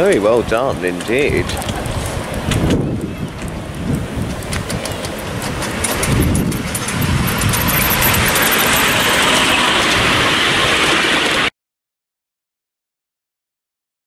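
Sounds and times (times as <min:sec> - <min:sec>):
miniature train wheels clattering: 0:00.0 - 0:10.0.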